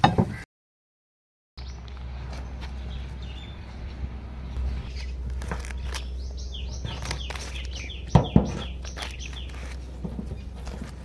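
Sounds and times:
birds chirping: 1.6s - 11.0s
spade digging dry earth: 4.7s - 11.0s.

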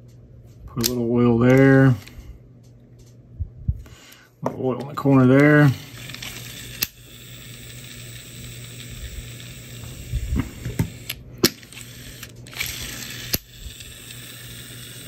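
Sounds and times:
sharp reel clicks: 5.4s - 15.0s
spool whirring: 5.4s - 15.0s
fishing reel ratcheting gears: 11.0s - 15.0s.

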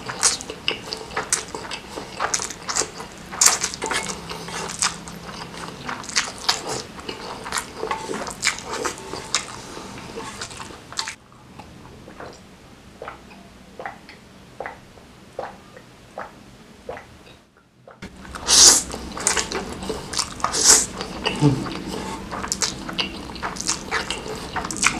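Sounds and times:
slurping and chewing noodles: 0.0s - 12.4s, 18.0s - 24.9s.

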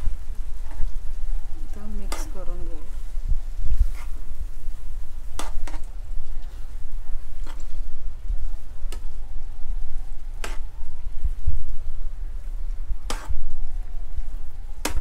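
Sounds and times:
steady low rumble: 0.0s - 15.0s
metal spatula scraping pan: 13.1s - 13.4s.

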